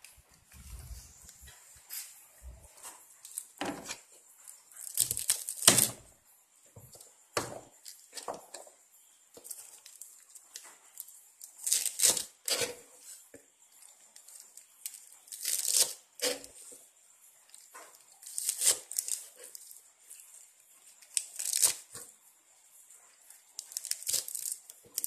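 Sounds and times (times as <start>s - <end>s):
leaves rustling and tearing: 4.8s - 5.9s, 11.5s - 12.6s, 14.8s - 16.4s, 18.2s - 19.6s, 21.2s - 21.8s, 23.6s - 25.0s.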